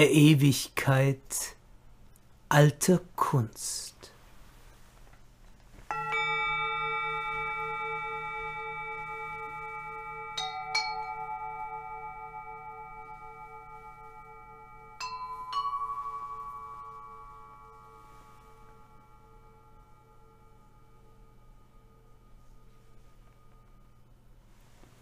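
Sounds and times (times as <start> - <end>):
singing bowl ringing: 5.9 - 24.4.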